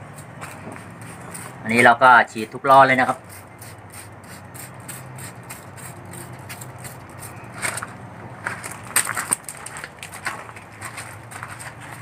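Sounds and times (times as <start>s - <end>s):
footsteps crunching on gravel: 7.4s - 12.0s.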